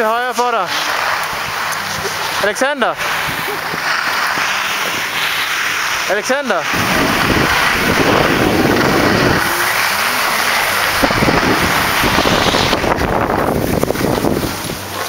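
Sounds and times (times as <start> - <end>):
snow scraping under skis: 0.0 - 15.0
low rumble: 6.7 - 14.6
wind buffeting microphone: 6.7 - 15.0.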